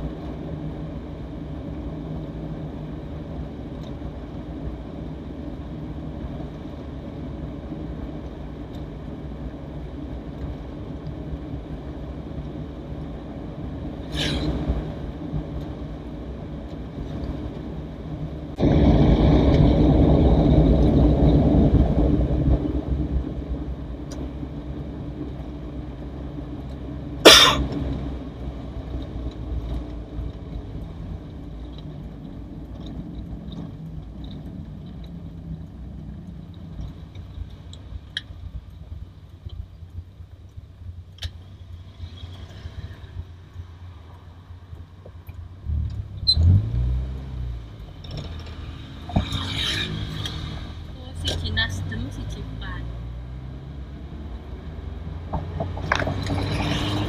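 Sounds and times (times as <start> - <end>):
car engine and road noise: 0.0 - 57.0.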